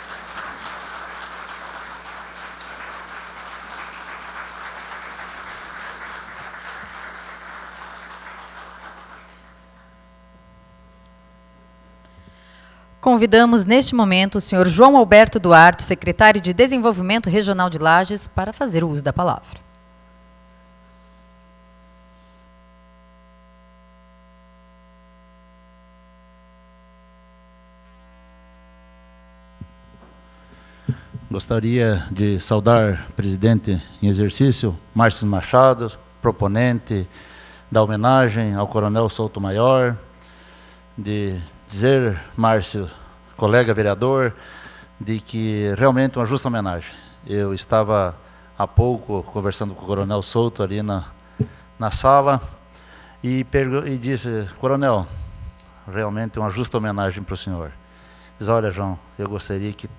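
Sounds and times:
audience applauding: 0.0 - 9.9
faint electrical hum: 0.0 - 59.9.

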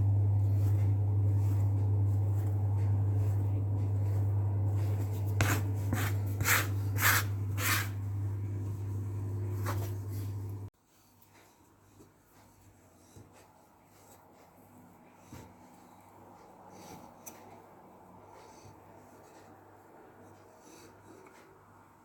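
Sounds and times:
steady low hum: 0.0 - 10.7
dough scraper cutting on wooden board: 4.8 - 8.0.

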